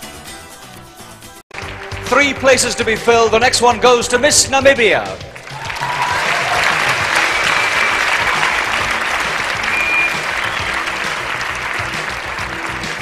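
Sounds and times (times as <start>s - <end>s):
audience applauding: 1.5s - 3.0s, 5.2s - 13.0s.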